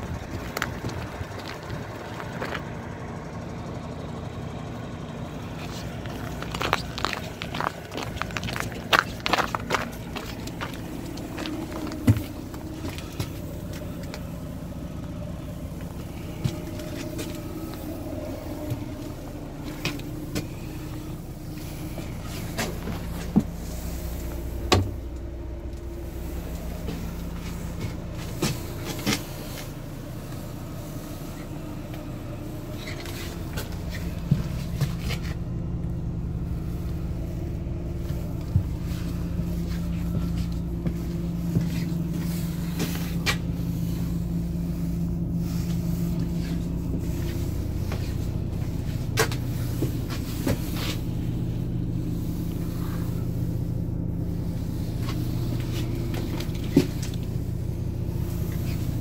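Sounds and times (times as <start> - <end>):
diesel engine idling: 0.0 - 59.0
footsteps: 5.6 - 31.3, 31.9 - 51.0.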